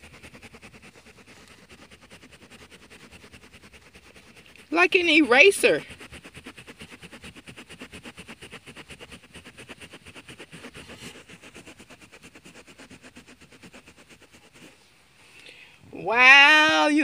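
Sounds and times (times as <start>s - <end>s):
cloth scrubbing upholstery: 0.0s - 15.0s.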